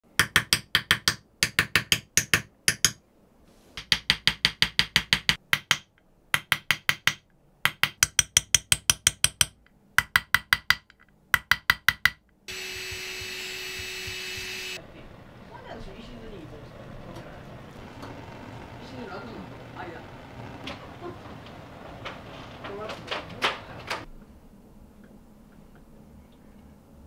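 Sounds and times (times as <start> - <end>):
hammer tapping steel chisel: 0.2 - 3.0, 3.8 - 14.8
steady hiss with low hum: 12.5 - 27.0.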